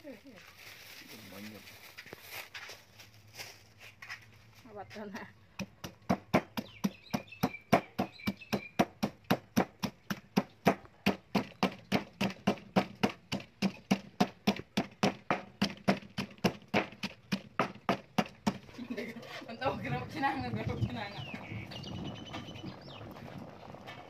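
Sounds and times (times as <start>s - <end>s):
pestle pounding in stone mortar: 5.5s - 18.7s.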